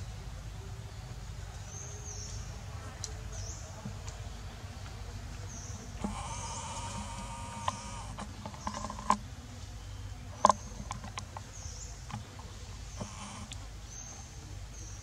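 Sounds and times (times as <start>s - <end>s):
low background hiss: 0.0s - 15.0s
pitched animal call: 6.0s - 8.2s.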